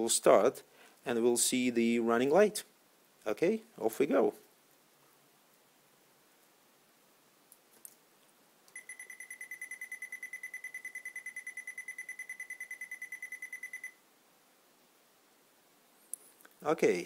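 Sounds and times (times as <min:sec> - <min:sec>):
short high-pitched beeps: 0:08.7 - 0:14.0.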